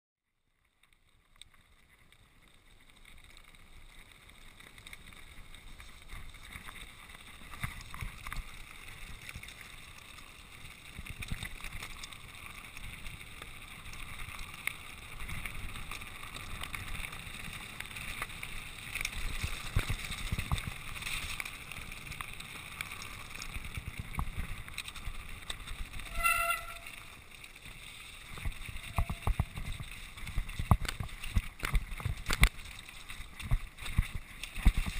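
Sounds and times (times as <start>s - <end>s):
bike rattling: 1.0s - 34.9s
tyres crunching over gravel: 1.6s - 34.9s
high squeal: 26.0s - 27.0s.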